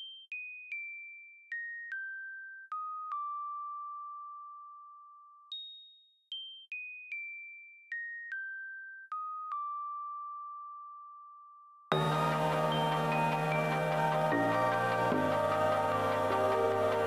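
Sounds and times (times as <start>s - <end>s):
bell-like instrumental melody: 11.9s - 17.0s.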